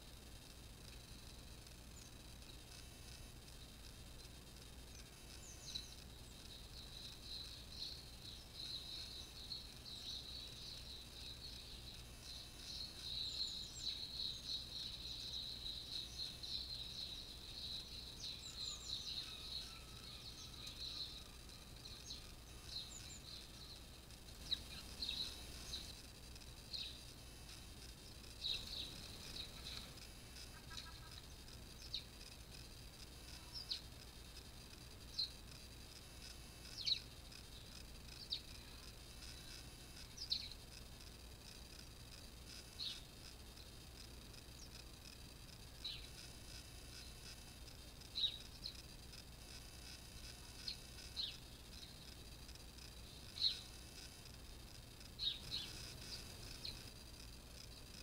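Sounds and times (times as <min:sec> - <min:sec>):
songbird warbling: 0:05.0 - 0:23.8, 0:28.0 - 0:32.1.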